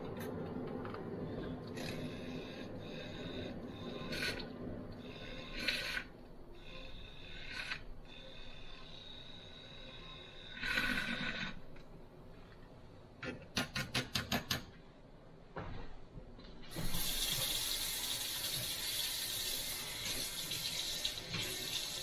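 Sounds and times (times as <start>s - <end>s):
kitchen tap running: 16.7s - 22.0s.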